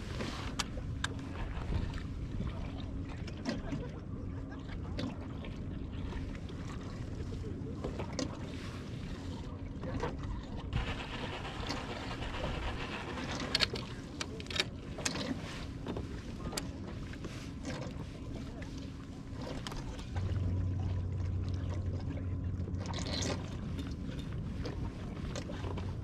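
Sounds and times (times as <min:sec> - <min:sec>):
water sloshing around kayak: 0:00.0 - 0:26.0
wind buffeting microphone: 0:10.7 - 0:14.5
fishing gear clicks and knocks: 0:12.9 - 0:16.7.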